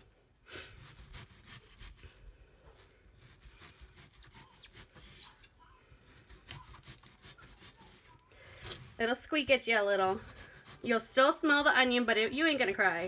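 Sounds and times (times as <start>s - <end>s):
knife slicing onion on cutting board: 6.1s - 8.2s.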